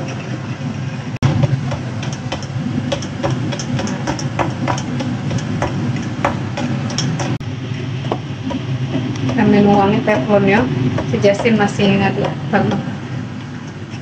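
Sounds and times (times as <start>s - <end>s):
low hum: 0.0s - 14.0s
utensil clicking against bowl: 1.7s - 7.4s.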